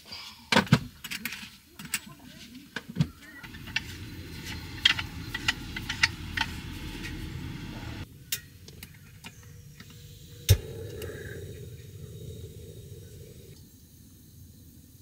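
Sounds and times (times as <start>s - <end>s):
gas burner hissing: 3.4s - 13.6s.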